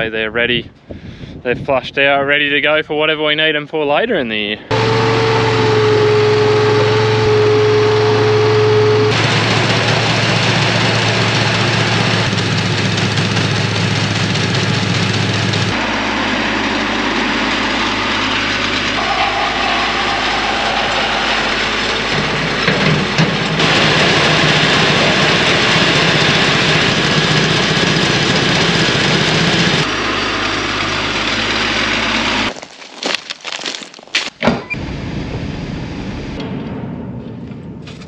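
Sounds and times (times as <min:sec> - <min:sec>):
small petrol engines running: 0:04.7 - 0:33.1
footsteps crunching on dry leaves: 0:32.5 - 0:34.3.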